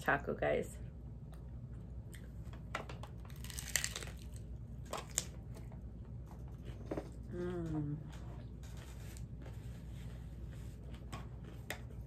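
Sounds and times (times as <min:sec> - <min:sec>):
taco shell crunching: 0:03.1 - 0:05.4.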